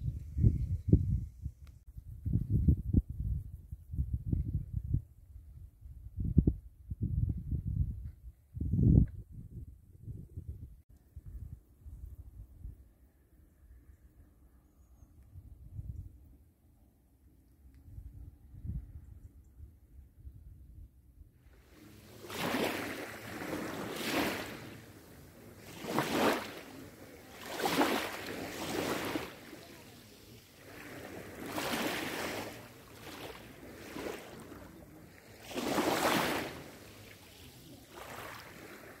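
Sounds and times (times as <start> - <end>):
waves lapping on pebbly shore: 21.6 - 39.0.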